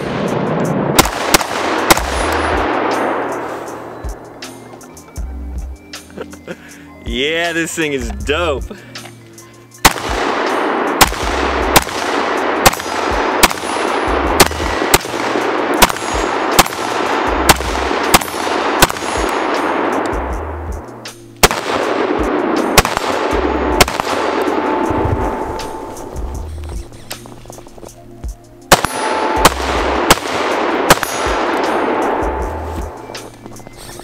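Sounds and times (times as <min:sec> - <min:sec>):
gunshots: 0:00.0 - 0:03.8, 0:09.8 - 0:20.2, 0:21.4 - 0:26.2, 0:28.7 - 0:32.6
background music: 0:00.0 - 0:34.0.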